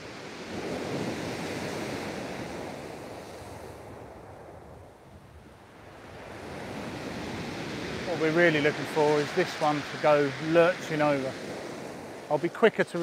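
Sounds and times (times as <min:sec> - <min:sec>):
surf breaking on shingle beach: 0:06.0 - 0:13.0.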